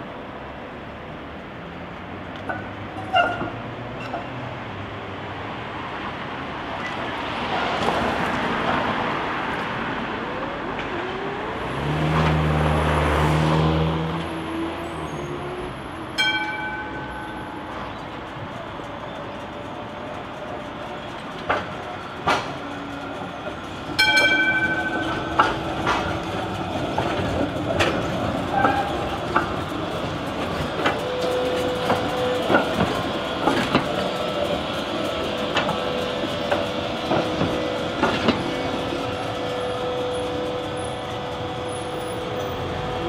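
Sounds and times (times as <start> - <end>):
tram rumbling on track: 0.0 - 43.0
tram warning gong: 8.1 - 43.0
wheel clacks over rail joints: 16.1 - 42.5.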